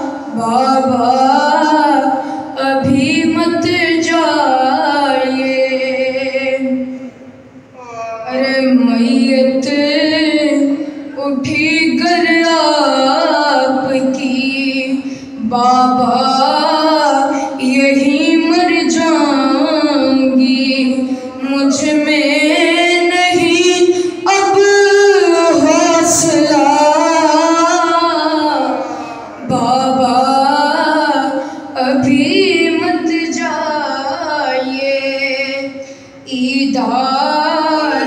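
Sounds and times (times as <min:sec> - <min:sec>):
boy chanting a lament: 0:00.0 - 0:38.0.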